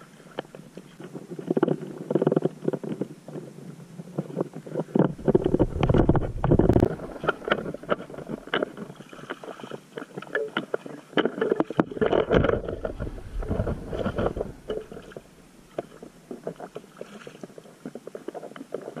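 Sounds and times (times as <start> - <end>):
wind rumble on microphone: 3.2 - 9.0, 11.8 - 16.6
paddle splashing in water: 4.7 - 19.0.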